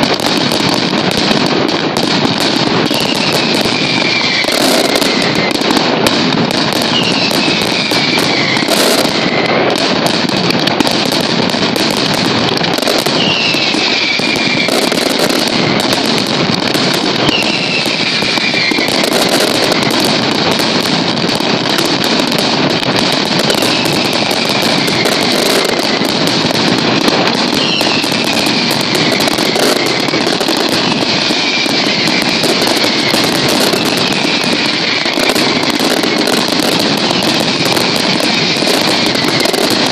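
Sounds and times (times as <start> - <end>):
firecrackers rattling: 0.0 - 39.9
falling whistles: 2.9 - 5.5, 6.9 - 9.5, 13.2 - 14.9, 17.2 - 19.4, 27.6 - 30.0.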